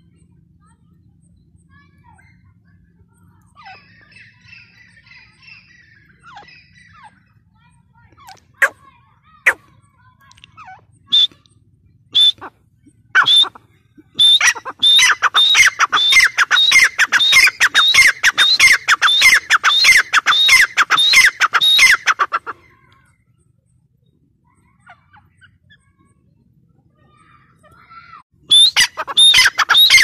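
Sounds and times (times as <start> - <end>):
francolin calling: 10.5 - 11.4, 12.2 - 12.5, 13.2 - 22.6, 28.5 - 30.0.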